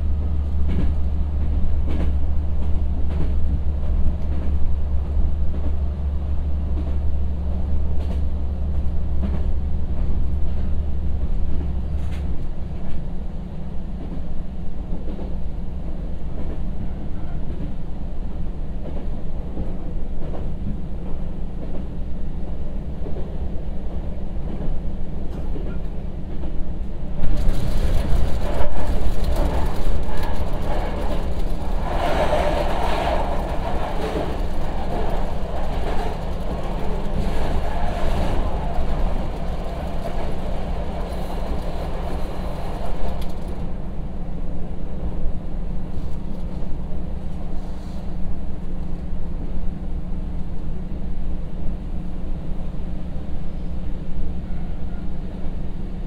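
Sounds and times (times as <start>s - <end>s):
railcar diesel engine drone: 0.0s - 56.0s
wheel and rail noise: 24.4s - 44.3s.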